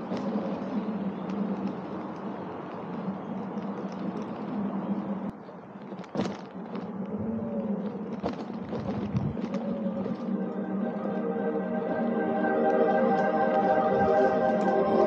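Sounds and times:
tyre rolling on dirt: 5.6s - 10.3s.

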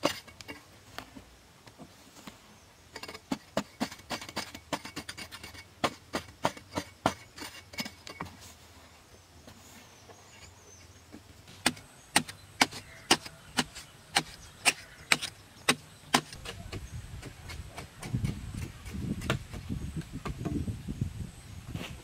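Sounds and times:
digging tool chopping earth: 3.0s - 8.3s, 11.5s - 20.5s.

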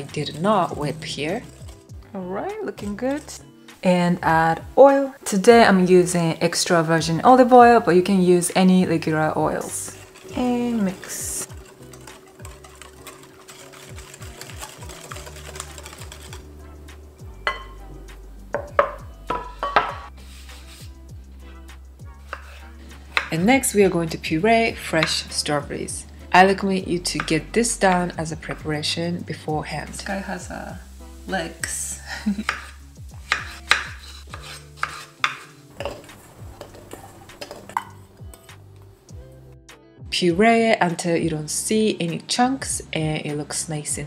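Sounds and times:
knife chopping on wooden board: 22.3s - 23.4s, 32.4s - 36.1s.

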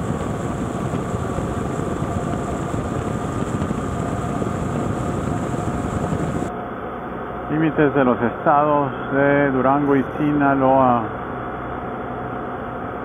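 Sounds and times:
wind and road noise: 0.0s - 6.5s
motorcycle engine drone: 0.0s - 13.0s.

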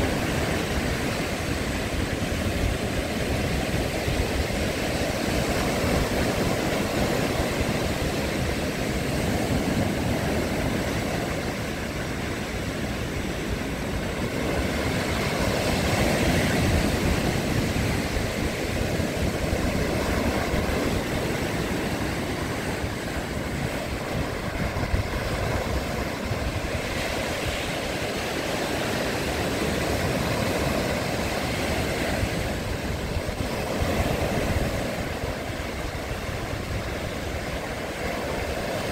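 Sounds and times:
waves breaking on a stony beach: 0.0s - 38.9s.

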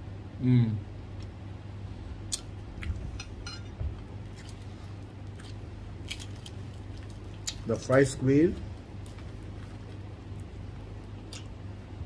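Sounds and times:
low steady hum: 0.0s - 12.0s
crisp food crackling and chewing: 4.0s - 11.7s.

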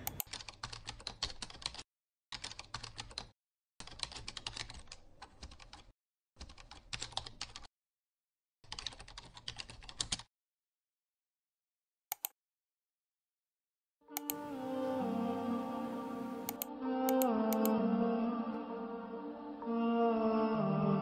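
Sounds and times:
keyboard typing clicks: 14.2s - 14.4s, 16.4s - 17.8s.

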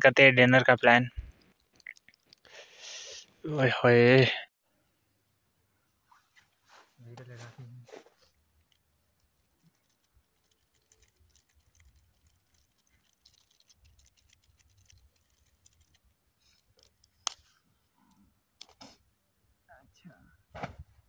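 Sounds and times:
campfire crackling: 1.2s - 3.3s, 8.2s - 18.0s.

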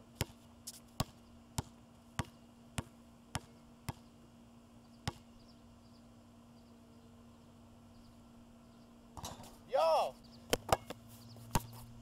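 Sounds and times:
basketball bouncing on hard court: 1.0s - 4.0s, 5.0s - 5.2s, 11.5s - 11.7s.

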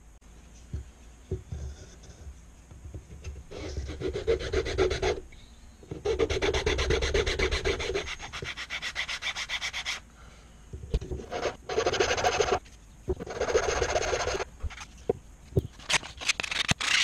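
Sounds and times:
hand file scraping wood: 3.2s - 5.2s, 5.9s - 10.0s, 11.2s - 12.6s, 13.2s - 14.5s.

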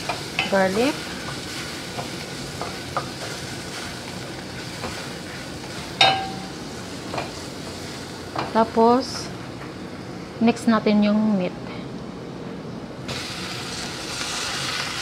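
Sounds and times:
onion and garlic sizzling: 0.0s - 11.5s, 13.0s - 15.0s
spatula knocking against pot: 6.0s - 6.5s.

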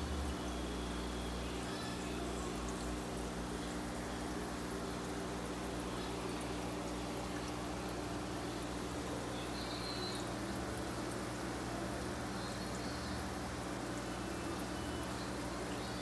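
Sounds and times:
constant low hum: 0.0s - 16.0s
water pouring and bubbling: 2.2s - 12.4s.

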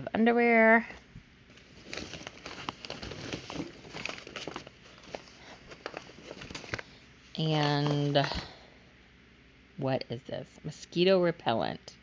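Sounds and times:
plastic packaging rustling: 1.5s - 8.6s.

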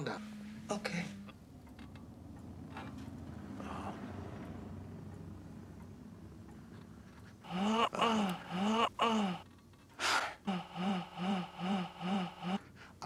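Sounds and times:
person whimpering and sobbing: 7.4s - 9.4s, 10.1s - 12.7s.

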